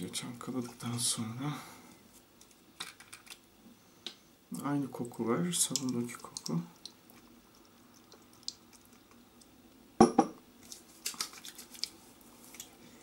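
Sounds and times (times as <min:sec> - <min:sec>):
glass bottle knocking: 0:10.0 - 0:10.4.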